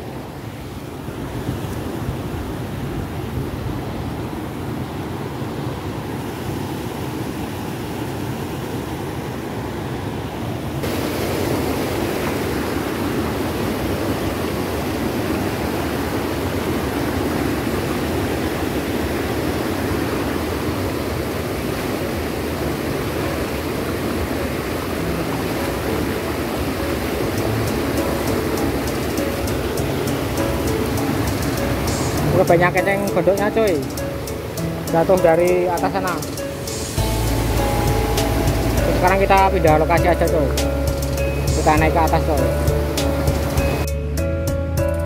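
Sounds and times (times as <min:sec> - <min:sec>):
water rushing over a weir: 0:00.0 - 0:43.9.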